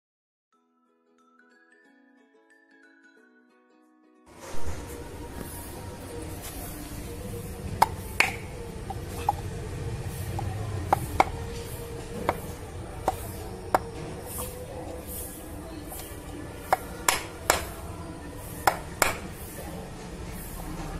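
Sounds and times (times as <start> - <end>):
metal bar striking screwdriver handle: 7.8 - 9.5.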